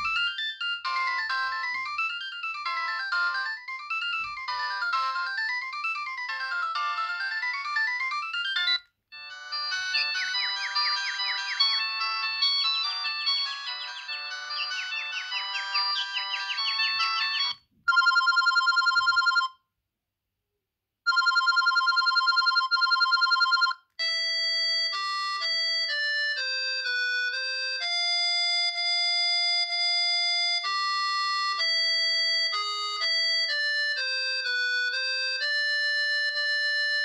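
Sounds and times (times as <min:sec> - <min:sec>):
electronic ringtone melody: 0:00.0 - 0:19.6, 0:21.1 - 0:37.0
warbling two-tone phone ring: 0:00.0 - 0:19.6, 0:21.1 - 0:23.8.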